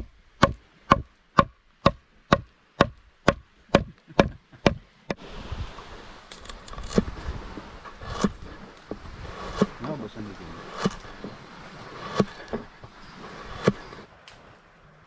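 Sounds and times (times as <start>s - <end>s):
soft rustling and scraping: 5.4s - 14.7s
blade chopping: 6.3s - 14.0s.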